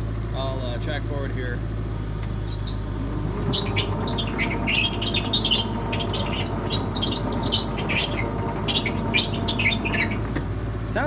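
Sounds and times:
diesel engine running: 0:00.0 - 0:11.0
tracks squeaking and creaking: 0:02.2 - 0:10.6.

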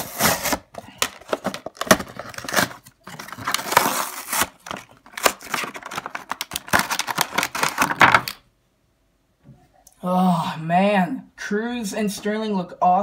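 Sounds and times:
cardboard tearing: 0:00.0 - 0:08.3
plastic blister crackling: 0:00.5 - 0:08.4.

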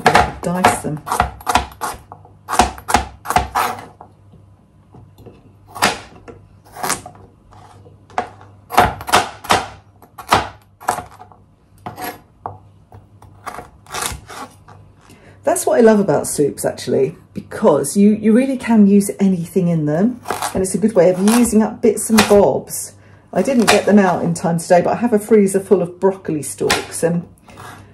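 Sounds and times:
knife chopping on plastic board: 0:00.0 - 0:04.0, 0:08.1 - 0:11.2, 0:23.4 - 0:24.1.

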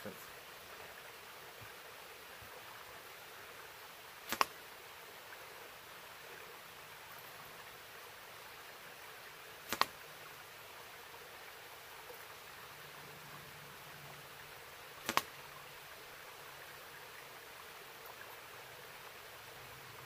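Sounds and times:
dart smacking into tree trunk: 0:04.3 - 0:04.6, 0:09.7 - 0:10.0, 0:15.0 - 0:15.3.

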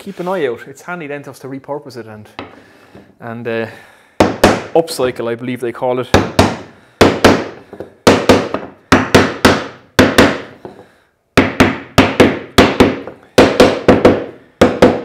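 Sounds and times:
hammer striking wood: 0:04.2 - 0:04.7, 0:06.1 - 0:10.8, 0:11.4 - 0:15.0.

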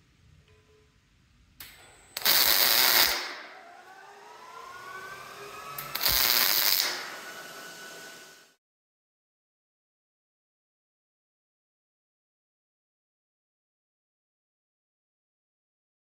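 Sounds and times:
quiet hiss: 0:00.0 - 0:03.3
welder arc crackling: 0:01.6 - 0:08.5.

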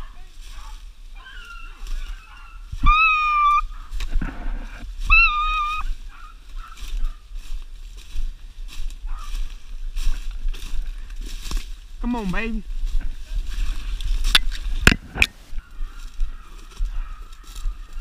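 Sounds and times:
hunting dogs baying: 0:00.0 - 0:07.6, 0:09.0 - 0:09.6, 0:15.0 - 0:18.0
leaves crunching underfoot: 0:00.0 - 0:18.0.

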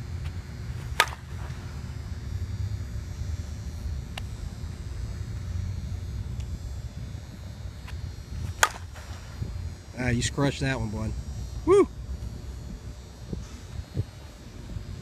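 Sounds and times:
steady low rumble: 0:00.0 - 0:15.0
bat striking a ball: 0:00.8 - 0:01.9, 0:08.5 - 0:09.4.

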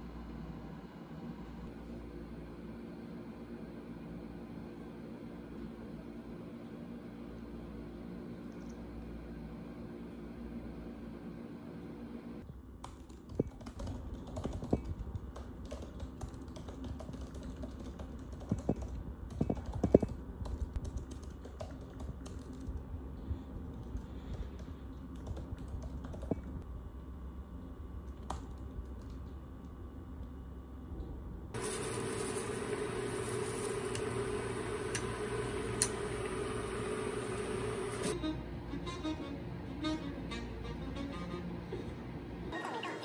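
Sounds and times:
typing on a keyboard: 0:12.8 - 0:22.8, 0:24.6 - 0:26.5.

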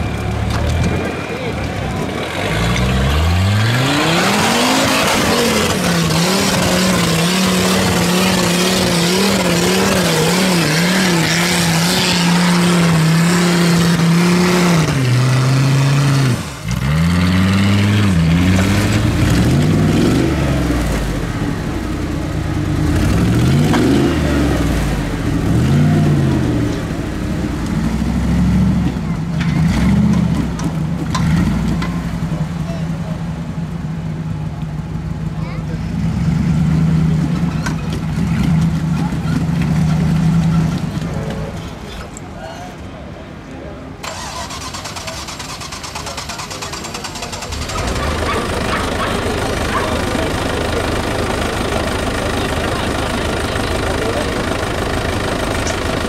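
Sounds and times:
buggy engine revving: 0:00.0 - 0:56.0
engine revving in short bursts: 0:44.0 - 0:50.6.

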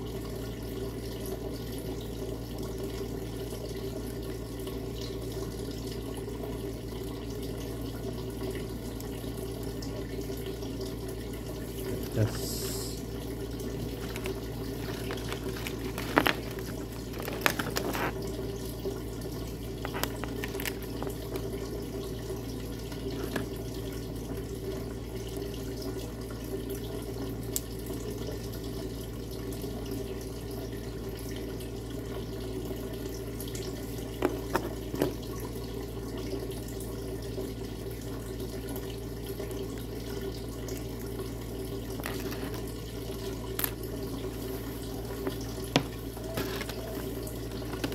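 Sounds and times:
plastic parts clicking and rustling: 0:14.0 - 0:18.2, 0:19.8 - 0:21.5, 0:22.9 - 0:23.5, 0:34.2 - 0:35.2, 0:42.0 - 0:42.7, 0:43.5 - 0:43.8, 0:45.8 - 0:47.0, 0:47.6 - 0:47.9.

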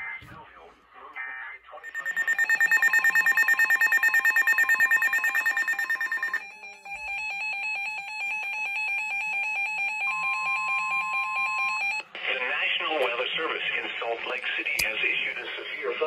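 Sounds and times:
steady radio warning tone: 0:01.8 - 0:06.4
fast electronic alarm beeping: 0:01.8 - 0:10.0.

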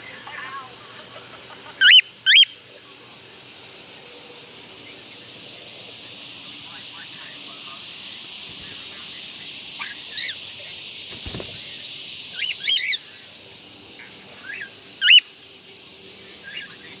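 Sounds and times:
steady high hiss: 0:00.0 - 0:17.0.

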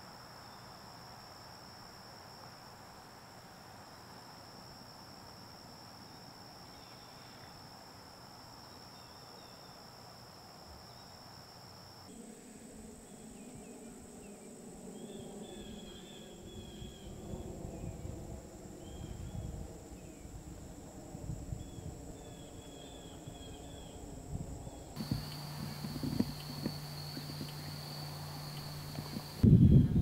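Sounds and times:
steady hum: 0:24.0 - 0:30.0
hooves thudding on ground: 0:25.0 - 0:29.5.

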